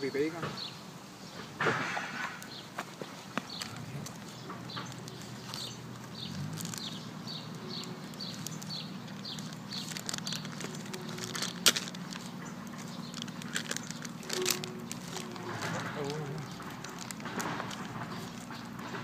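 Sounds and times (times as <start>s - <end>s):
small bird chirping: 2.4s - 17.4s.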